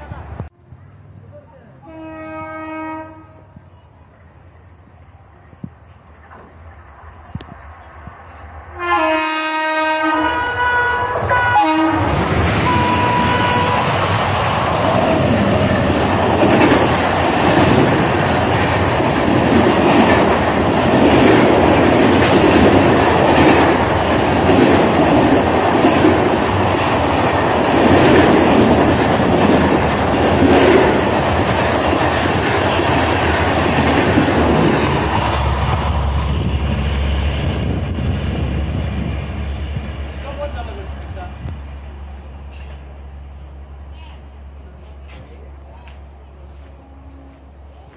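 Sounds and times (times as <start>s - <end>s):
train passing at speed: 0.0s - 47.9s
locomotive horn blast: 1.8s - 3.6s, 8.7s - 14.0s, 46.7s - 47.6s.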